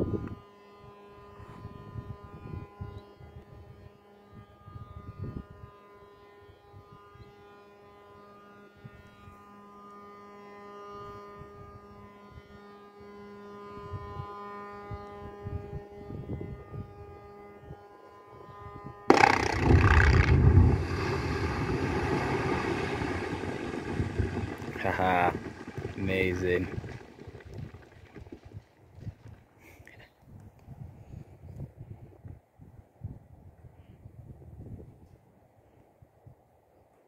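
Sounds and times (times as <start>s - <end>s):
dynamite blast in quarry: 19.1s - 25.4s
steady multi-pitched drone: 19.1s - 28.2s
heavy rumble: 19.1s - 28.6s
wind gusts on microphone: 19.1s - 29.4s, 30.2s - 35.4s.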